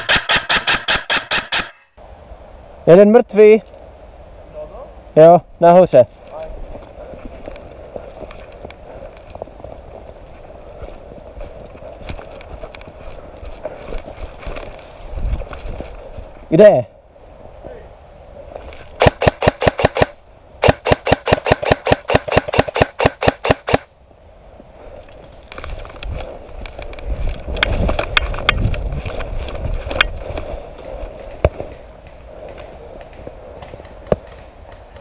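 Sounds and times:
airsoft rifle shots: 0.0 - 1.9, 19.0 - 23.9
rustling near microphone: 6.1 - 16.5, 24.4 - 35.0.

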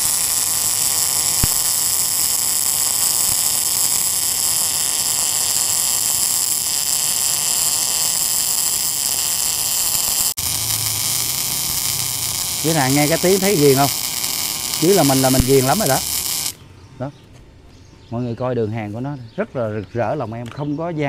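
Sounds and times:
welding arc hissing: 0.0 - 16.6.

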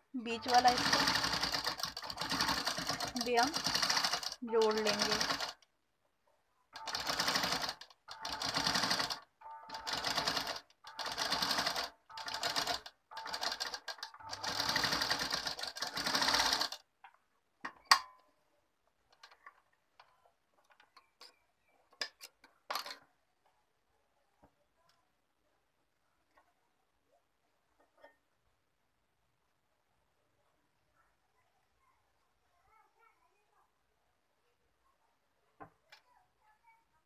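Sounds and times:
sewing machine stitching: 0.3 - 5.6, 6.8 - 16.8.

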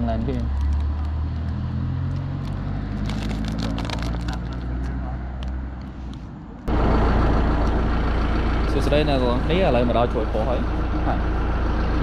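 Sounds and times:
low engine hum: 0.0 - 12.0
plastic bag crinkling: 2.4 - 4.9.

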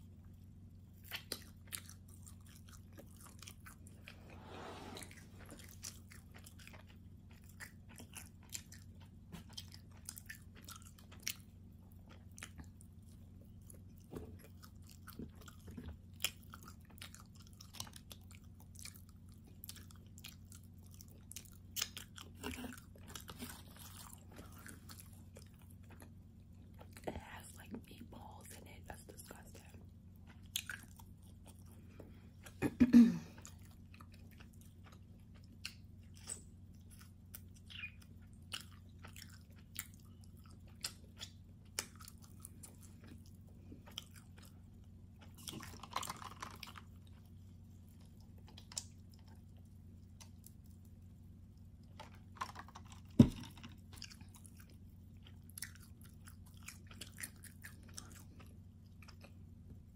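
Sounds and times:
person chewing food: 0.0 - 59.9.

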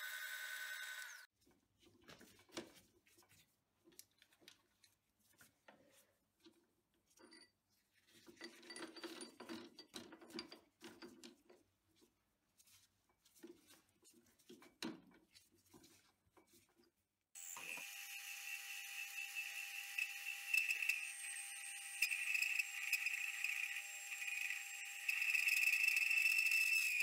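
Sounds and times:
lathe motor and gear whine: 17.4 - 27.0.

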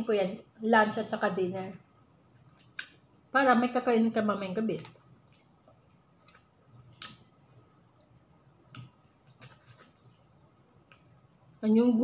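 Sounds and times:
lip smacks and mouth clicks: 2.2 - 3.0, 4.8 - 7.2, 8.6 - 11.6
person chewing food: 5.2 - 7.3, 8.0 - 11.6.

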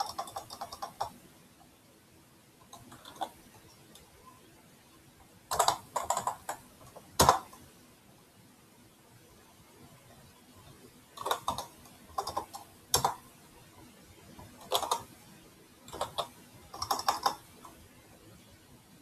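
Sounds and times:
keyboard typing: 0.0 - 1.2, 2.6 - 4.1, 5.5 - 7.7, 10.6 - 13.3, 14.3 - 15.2, 15.8 - 17.8.

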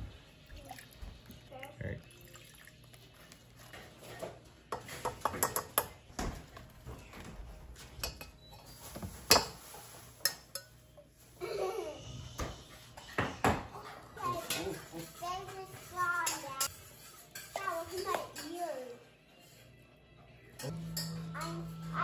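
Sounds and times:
spoon clinking against saucepan: 4.7 - 6.0, 8.0 - 10.8, 16.2 - 18.6, 20.6 - 21.9.

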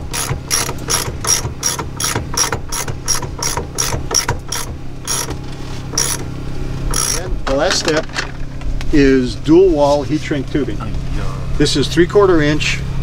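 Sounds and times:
ratchet crimper clicking: 0.1 - 5.4, 6.0 - 6.3, 6.9 - 7.3.

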